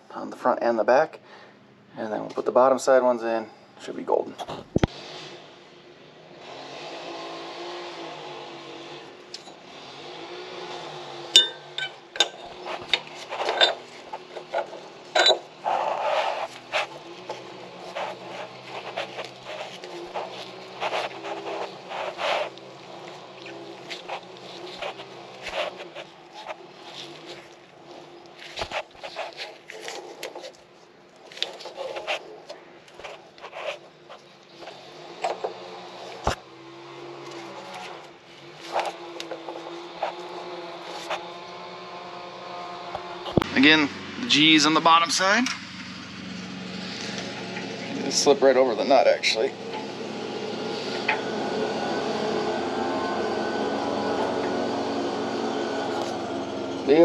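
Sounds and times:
gloved hands rubbing parts: 10.6s - 36.4s, 37.2s - 41.3s
metal collars clinking and scraping: 11.3s - 35.6s.

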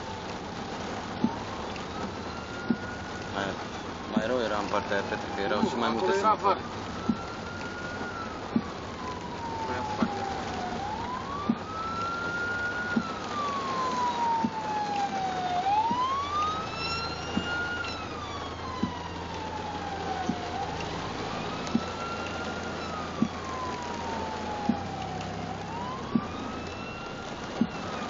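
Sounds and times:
siren wailing: 0.0s - 28.0s.

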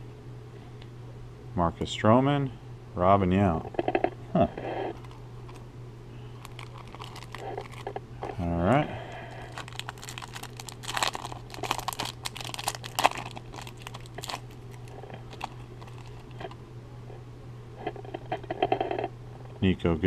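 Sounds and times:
steady low hum: 0.0s - 20.0s
foil wrapper crinkling and tearing: 6.4s - 8.0s, 9.1s - 16.6s.

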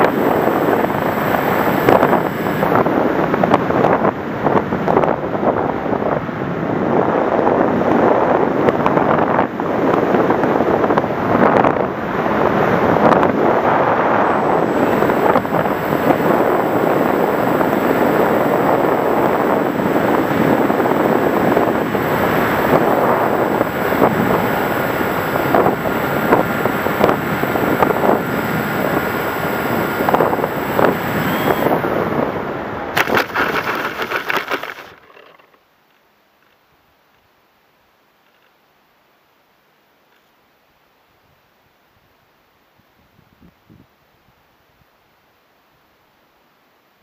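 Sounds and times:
electric motor whine: 0.0s - 4.2s, 11.6s - 35.6s
air rushing over microphone: 0.0s - 35.0s.

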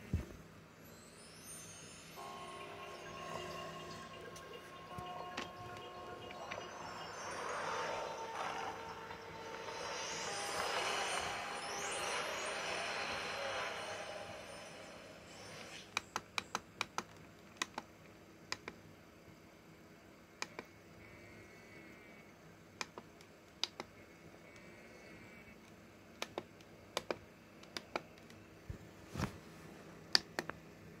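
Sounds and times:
faint wavering tone: 0.8s - 15.9s.

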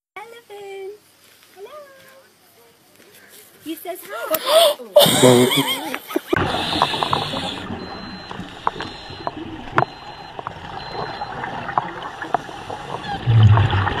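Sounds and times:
watery hiss: 6.4s - 8.8s
sharp underwater clicks: 6.4s - 13.8s
low bubbling rumble: 6.4s - 14.0s.

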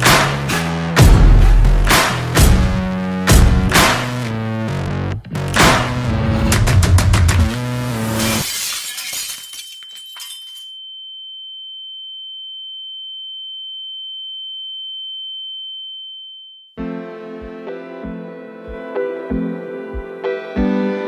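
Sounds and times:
music: 0.0s - 8.5s, 16.8s - 21.0s
glass shattering: 8.1s - 10.8s
high-pitched ringing tone: 9.6s - 16.8s.

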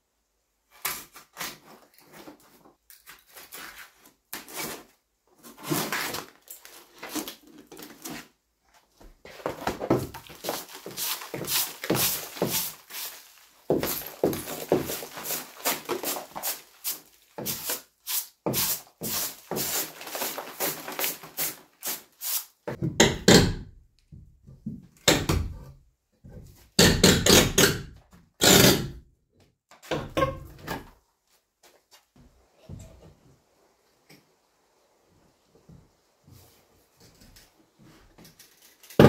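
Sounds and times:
brush scraping debris: 9.3s - 22.5s.

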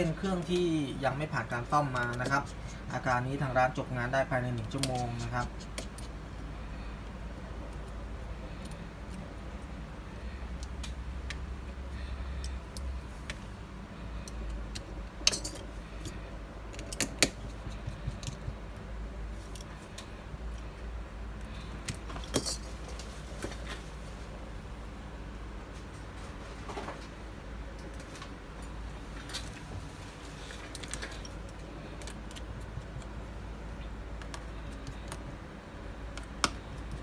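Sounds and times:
steady low hum: 0.0s - 37.0s
small clicks and metallic clinks: 14.2s - 18.6s, 21.8s - 23.1s.

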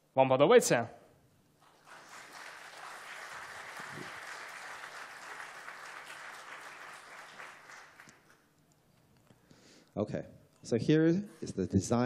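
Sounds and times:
audience clapping: 1.6s - 8.5s.

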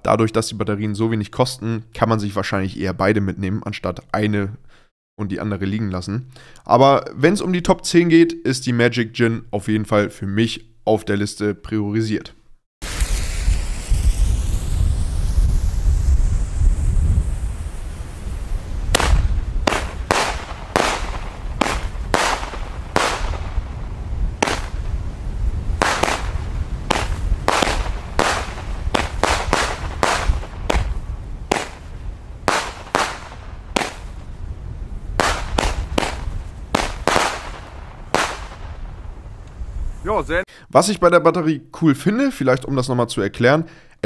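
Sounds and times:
firework bangs: 12.8s - 39.4s
wind rumble on microphone: 12.8s - 40.4s.

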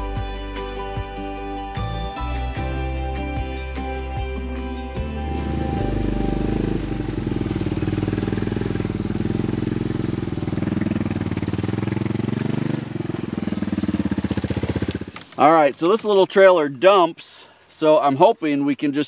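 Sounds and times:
atv engine running: 4.9s - 15.6s.

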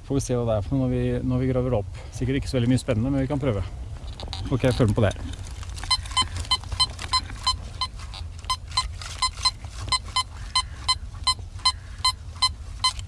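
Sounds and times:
metal detector short high beeps: 5.8s - 13.0s.

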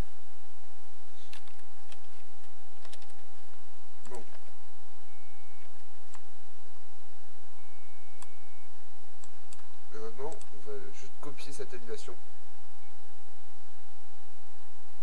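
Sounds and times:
faint electrical hum: 0.0s - 15.0s
mouse and keyboard clicks: 1.3s - 3.2s.

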